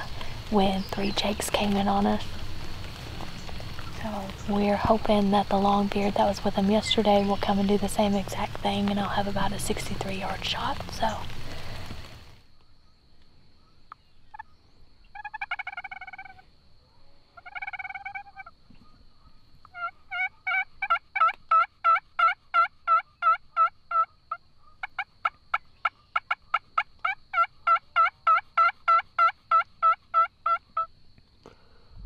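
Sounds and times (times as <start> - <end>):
turkey call yelps: 15.1 - 16.5, 17.4 - 18.5, 19.7 - 30.9.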